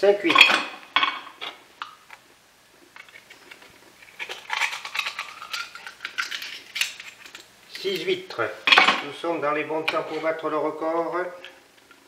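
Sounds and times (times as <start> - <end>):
knife scraping oyster shells: 3.0 - 8.1.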